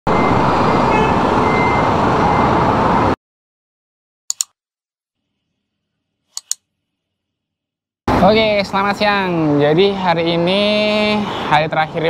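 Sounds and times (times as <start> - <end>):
street traffic: 0.1 - 3.2, 8.1 - 12.0
double mouse-click sound effect: 4.3 - 4.6, 6.4 - 6.6.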